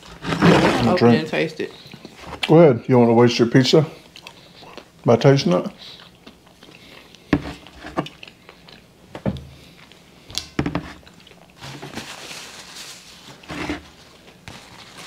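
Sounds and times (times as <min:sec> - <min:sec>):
soft rustling: 0:11.6 - 0:15.0.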